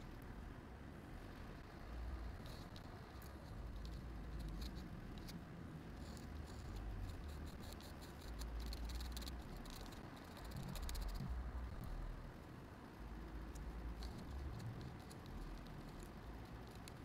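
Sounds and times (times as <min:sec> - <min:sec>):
faint low rumble: 0:00.0 - 0:17.0
pen nib scratching on paper: 0:02.3 - 0:11.9, 0:13.5 - 0:17.0.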